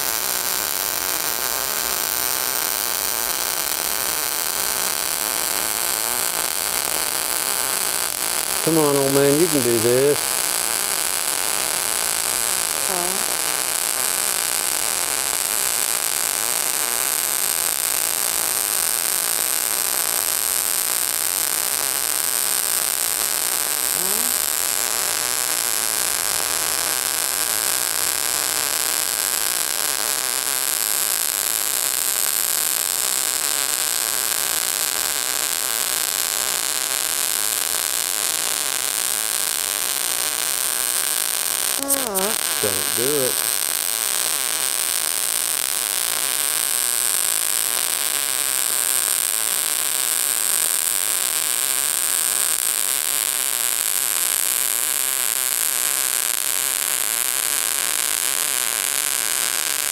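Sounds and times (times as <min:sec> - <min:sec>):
welding arc hissing: 0:00.0 - 0:19.0, 0:23.3 - 0:24.8, 0:37.2 - 0:59.8.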